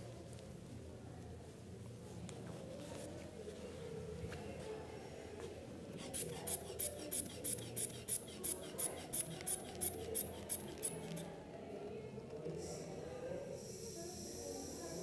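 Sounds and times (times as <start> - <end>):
inflation bulb pumping air: 6.0 - 11.3.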